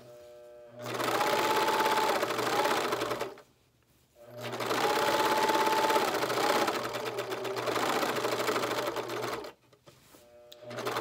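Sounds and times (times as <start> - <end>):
sewing machine stitching: 0.8 - 3.4, 4.3 - 9.6, 10.6 - 11.0.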